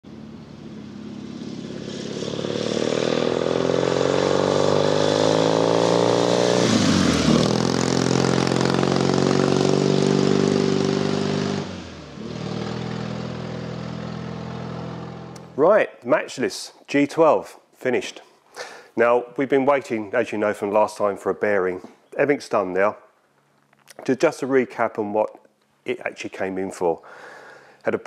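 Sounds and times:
motorcycle engine passing by: 0.0s - 15.4s.

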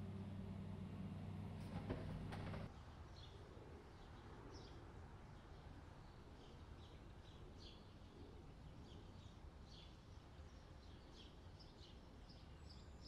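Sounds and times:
low outdoor rumble: 0.0s - 2.7s.

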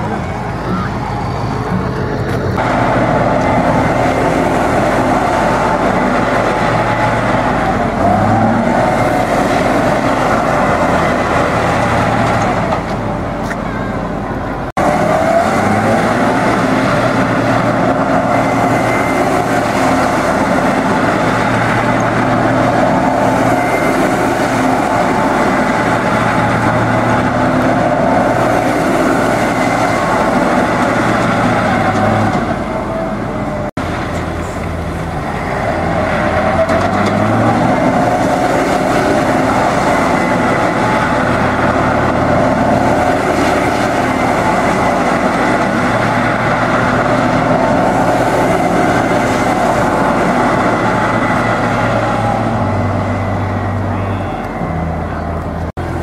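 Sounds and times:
truck diesel engine revving: 0.0s - 56.0s.

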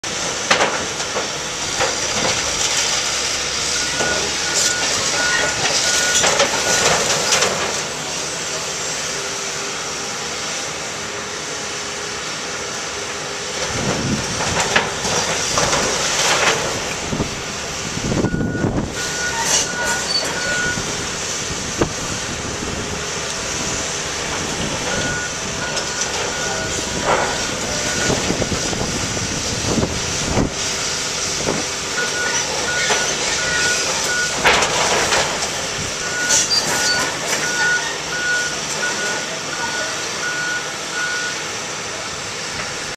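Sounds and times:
excavator running: 0.0s - 42.9s
reversing alarm beeping: 3.6s - 7.4s, 18.2s - 21.0s, 24.7s - 28.8s, 31.9s - 35.2s, 36.0s - 41.6s.

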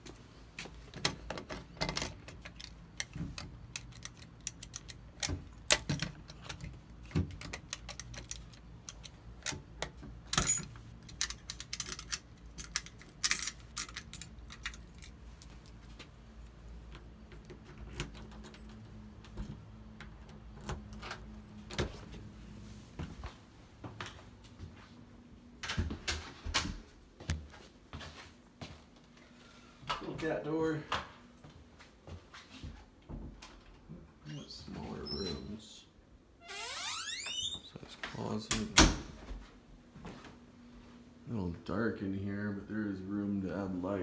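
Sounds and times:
keys jangling: 3.7s - 9.6s, 10.3s - 19.0s.

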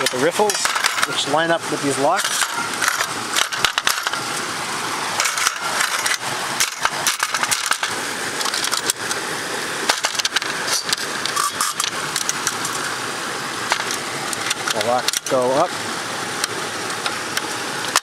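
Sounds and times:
metal clicks knocks and scrapes: 2.2s - 4.2s, 5.2s - 9.2s, 9.9s - 12.8s, 13.7s - 15.4s.

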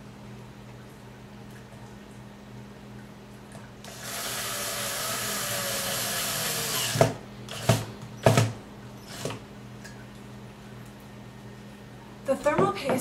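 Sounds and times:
cordless drill driving screw: 3.9s - 7.9s.

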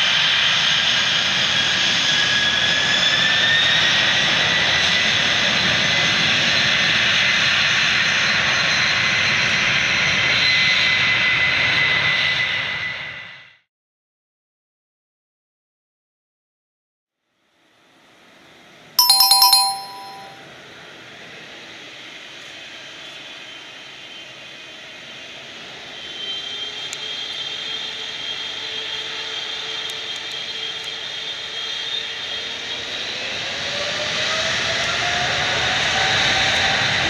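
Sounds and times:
chime ringing: 19.0s - 20.4s.

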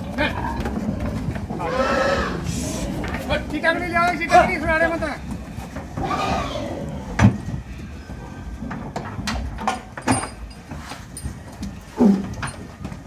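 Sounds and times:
chains clanking and knocking: 8.7s - 13.0s.

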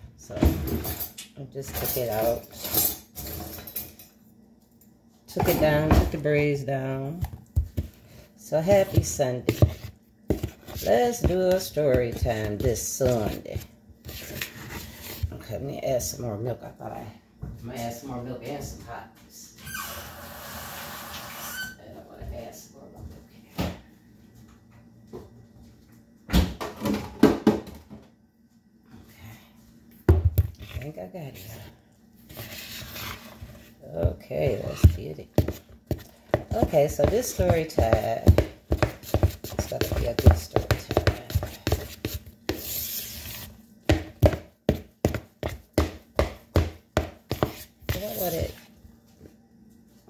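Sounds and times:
kitchen knocks and bumps: 5.4s - 6.4s, 26.3s - 28.0s, 43.9s - 48.1s
spoon beating batter in bowl: 7.1s - 15.4s, 32.3s - 48.7s
spoon scraping bowl: 8.1s - 15.4s, 30.6s - 33.8s, 34.5s - 43.6s, 47.3s - 48.7s.

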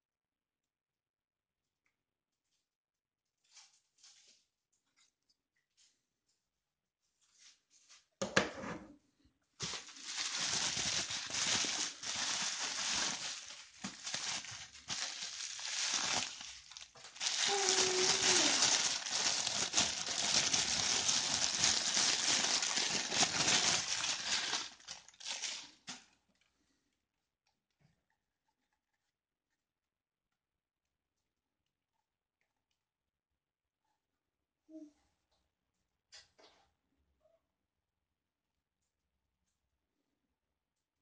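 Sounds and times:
packaging wrap crinkling: 9.6s - 26.0s.

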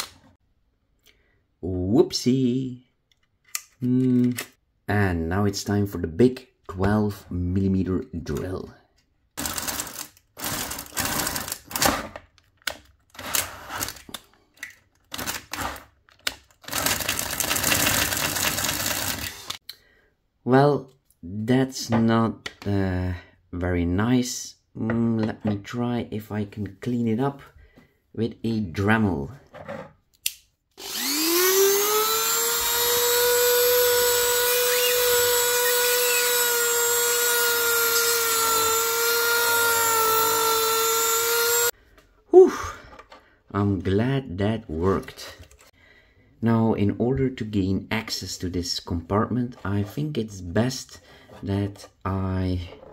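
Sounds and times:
power drill boring into plastic: 9.4s - 12.0s, 15.1s - 15.8s, 16.6s - 19.6s, 30.8s - 41.7s
rotary multitool whining: 30.8s - 41.7s.

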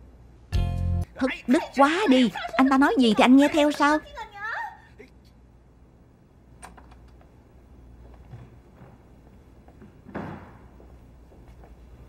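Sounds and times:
faint footsteps: 8.0s - 12.0s.

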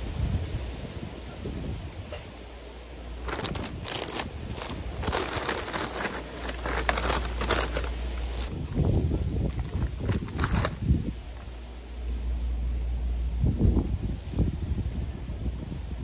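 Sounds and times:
paper crinkling and rustling: 3.2s - 11.6s.

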